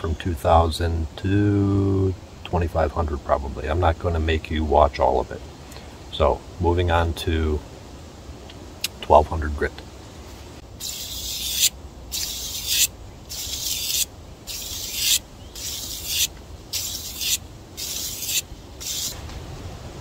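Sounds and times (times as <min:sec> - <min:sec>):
knife rasping on sandpaper: 0:10.8 - 0:19.2.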